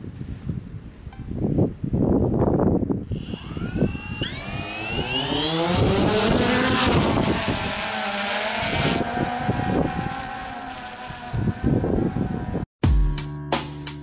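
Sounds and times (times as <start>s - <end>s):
drone propellers whining: 3.0s - 12.6s.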